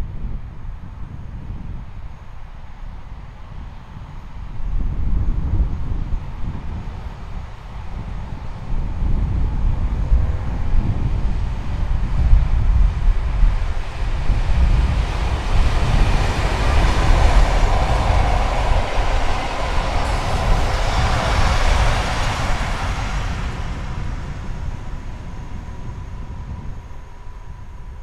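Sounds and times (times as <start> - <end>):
train wheels rolling on rails: 11.3 - 26.2.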